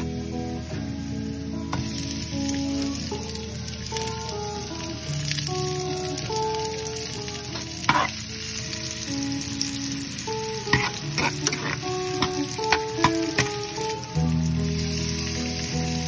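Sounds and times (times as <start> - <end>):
onion sizzling in oil: 0.0 - 16.0
soft background music: 0.0 - 16.0
metal spoon scraping pan: 7.9 - 8.2, 10.7 - 13.5.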